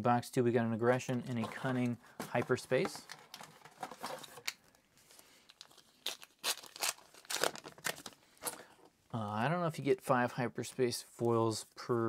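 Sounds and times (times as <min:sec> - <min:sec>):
foil wrapper tearing and crinkling: 0:05.5 - 0:08.2.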